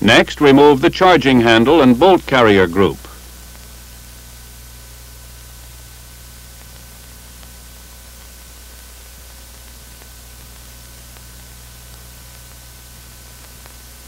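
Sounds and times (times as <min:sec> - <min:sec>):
film soundtrack hiss: 0:00.0 - 0:14.0
low mains hum: 0:00.0 - 0:14.0
crackle ticks: 0:03.4 - 0:03.8, 0:06.0 - 0:14.0.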